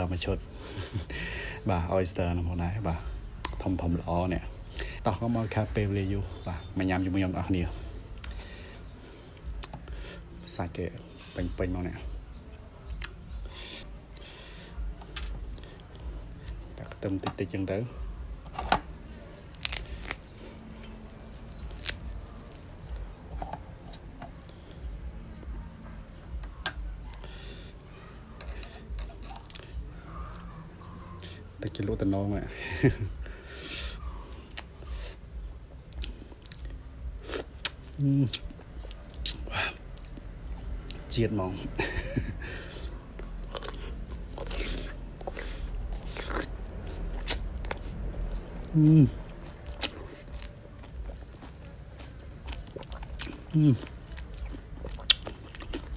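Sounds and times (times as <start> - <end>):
vegetable stems snapping: 19.5 - 20.3, 21.3 - 22.7
person chewing: 19.6 - 24.6, 42.8 - 48.0, 48.7 - 55.9.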